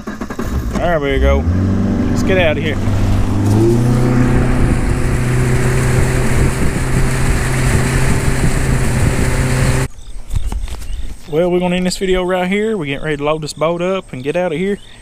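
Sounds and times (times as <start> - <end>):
outboard motor running: 0.0 - 9.9
wind and water rushing: 0.9 - 9.9.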